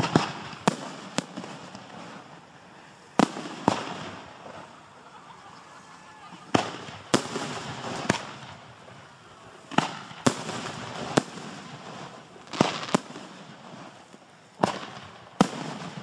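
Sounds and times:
firework hiss: 0.0s - 16.0s
fireworks bangs: 0.0s - 16.0s.

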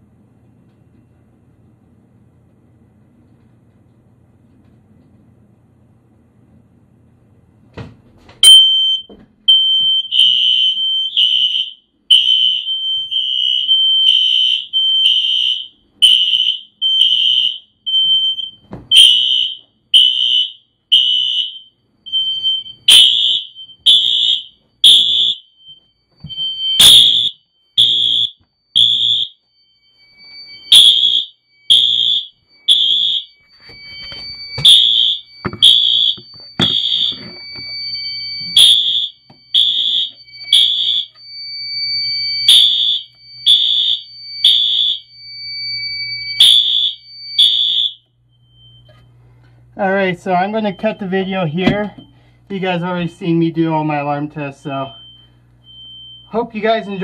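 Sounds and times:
smoke alarm beeping: 8.4s - 57.0s
steady high tone: 28.8s - 49.1s.

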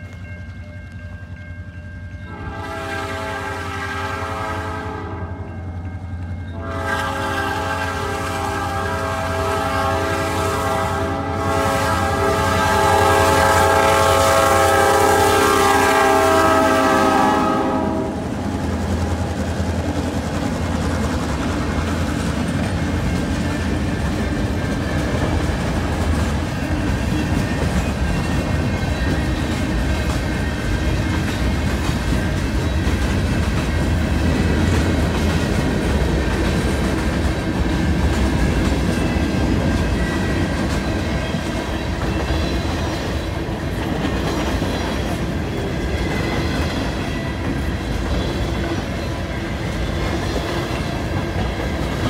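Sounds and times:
train wheels on rails: 0.0s - 52.0s
locomotive air horn blast: 2.3s - 5.4s, 6.6s - 18.4s.

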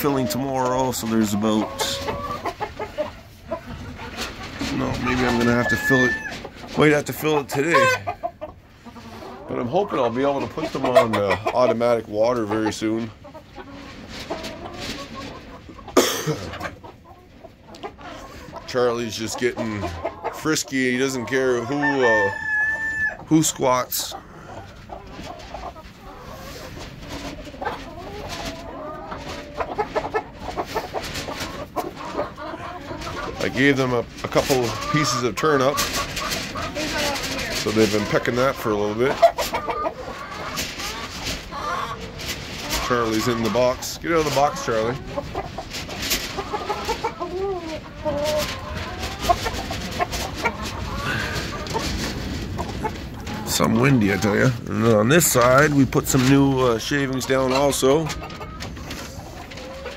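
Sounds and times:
chickens clucking: 0.0s - 59.9s.

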